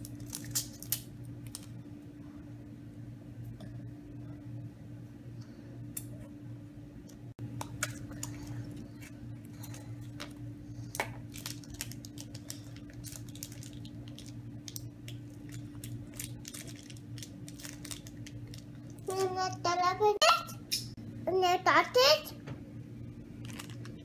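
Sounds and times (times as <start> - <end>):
steady low hum: 0.0 - 24.0
plastic capsule clicks and crinkles: 10.9 - 19.3.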